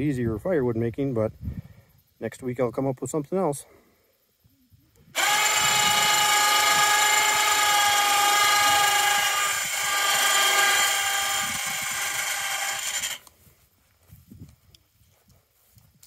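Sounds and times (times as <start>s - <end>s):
winch motor whining: 5.1s - 13.3s.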